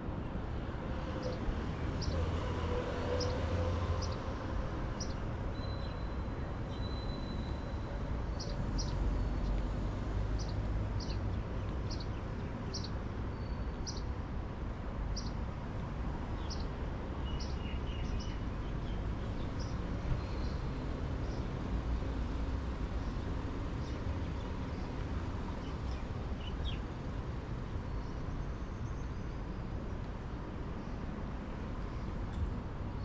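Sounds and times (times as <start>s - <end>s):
city traffic rumble: 0.0s - 33.0s.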